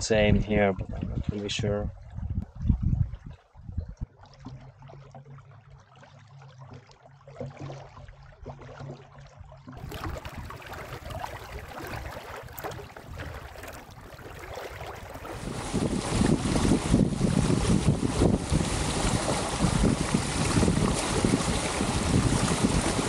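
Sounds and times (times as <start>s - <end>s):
wind on microphone: 0.0s - 4.2s, 9.8s - 23.0s
small waves on lake water: 0.0s - 23.0s
water trickling along hull: 0.0s - 23.0s.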